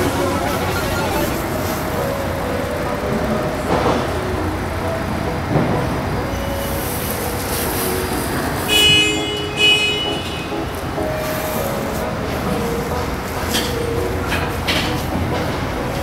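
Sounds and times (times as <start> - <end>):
short high-pitched toots: 0.0 - 1.6
busy outdoor crowd noise: 0.0 - 8.7, 10.2 - 16.0.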